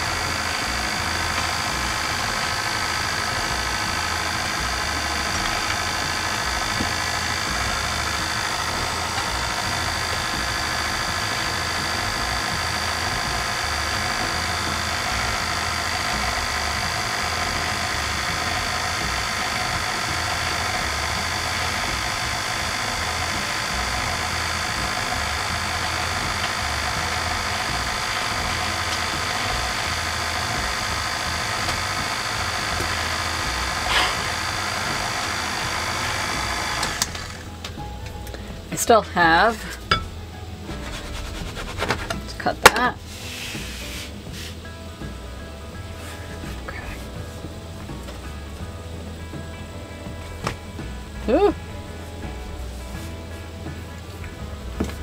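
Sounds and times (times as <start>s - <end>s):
stand mixer motor running: 0.0s - 40.0s.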